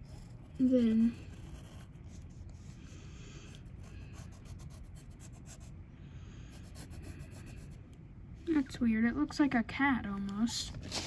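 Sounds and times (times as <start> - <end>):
pencil scratching on paper: 0.0 - 2.9, 3.5 - 5.7, 6.5 - 7.8.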